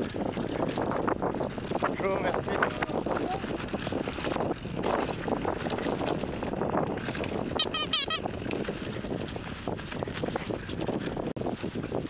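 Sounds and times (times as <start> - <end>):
bike rolling over dirt track: 0.0 - 12.0
rubber bulb horn honking: 7.6 - 8.2.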